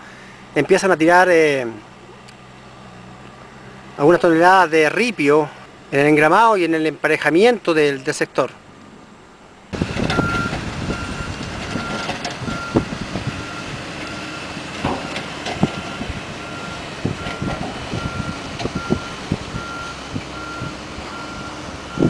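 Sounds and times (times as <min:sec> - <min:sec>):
diesel machinery running: 0:00.0 - 0:07.0, 0:08.6 - 0:22.0
reversing alarm beeping: 0:10.0 - 0:22.0
sharp knocks: 0:14.8 - 0:15.9.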